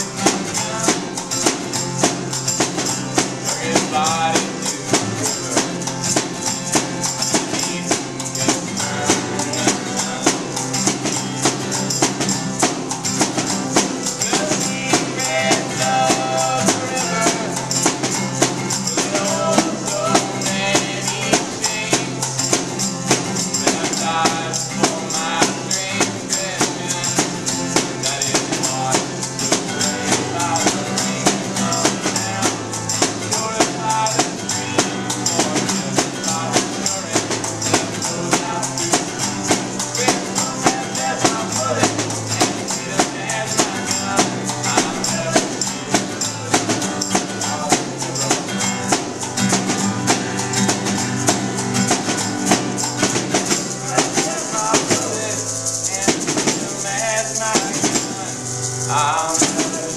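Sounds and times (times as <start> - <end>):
hand percussion: 0.0 - 59.9
strummed acoustic guitar: 0.0 - 59.9.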